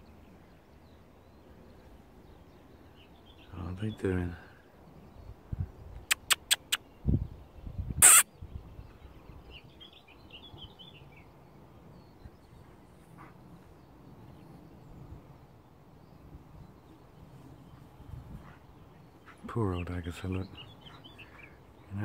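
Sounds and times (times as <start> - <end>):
faint bird chirping: 0.0 - 22.0
quick sharp clicks: 6.1 - 6.8, 8.0 - 8.2.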